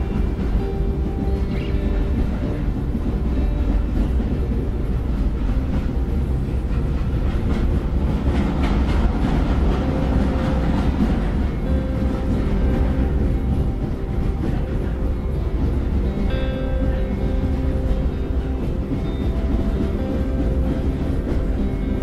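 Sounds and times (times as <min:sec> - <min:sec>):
rattling wheels and carriages: 0:00.0 - 0:22.0
train rumbling on track: 0:00.0 - 0:22.0.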